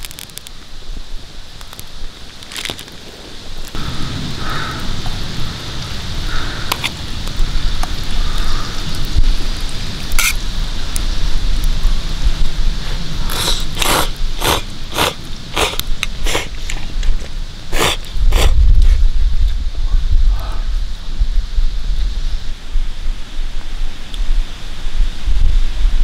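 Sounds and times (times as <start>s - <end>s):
campfire crackling and popping: 0.0s - 19.7s
slurping noodles: 13.3s - 16.6s, 17.7s - 18.6s.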